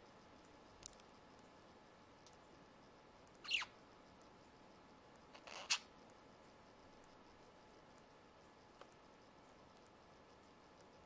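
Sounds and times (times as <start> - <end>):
budgerigars chirping: 3.4 - 3.7
faint click: 8.8 - 9.0.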